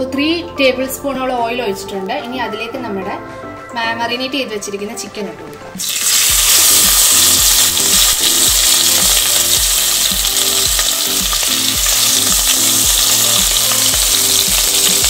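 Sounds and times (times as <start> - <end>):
chicken sizzling in hot oil: 5.8 - 15.0.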